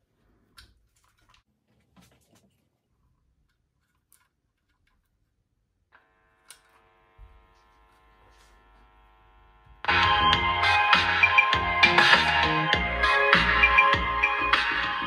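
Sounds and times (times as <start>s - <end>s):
loud music through speakers: 9.8s - 15.0s.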